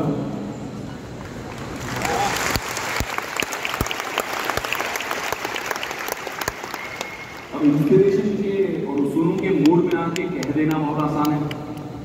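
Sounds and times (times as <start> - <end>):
audience applause: 1.2 - 7.9
sharp individual claps: 8.9 - 11.9.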